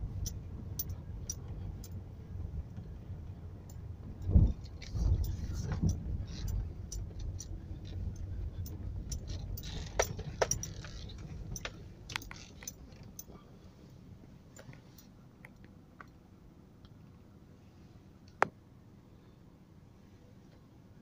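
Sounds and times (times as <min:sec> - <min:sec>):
vehicle rumble: 0:00.0 - 0:21.0
cabin clicks and rattles: 0:05.1 - 0:13.3.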